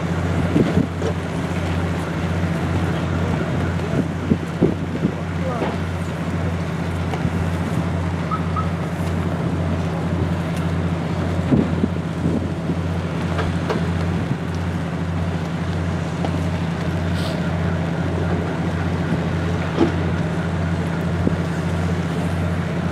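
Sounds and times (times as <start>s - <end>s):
engine humming: 0.0s - 22.9s.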